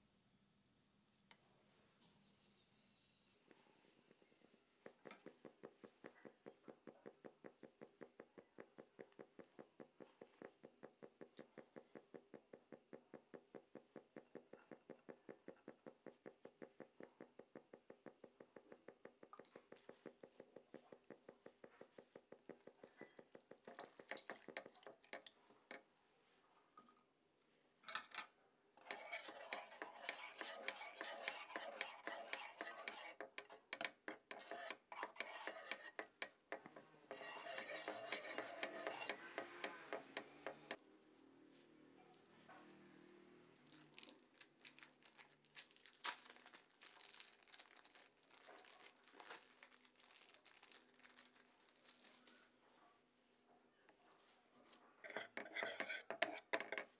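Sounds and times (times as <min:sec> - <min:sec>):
whisk scraping in pan: 0:28.8 - 0:40.8, 0:55.0 - 0:56.9.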